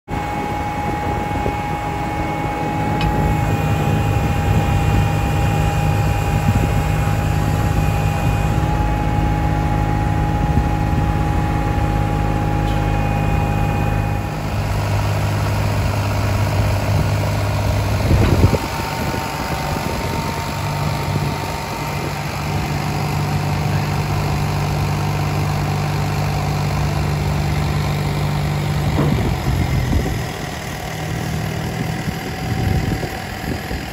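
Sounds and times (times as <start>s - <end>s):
hydraulic whine: 0.1s - 33.9s
truck engine running: 0.1s - 33.9s
loud clunk: 28.9s - 29.4s.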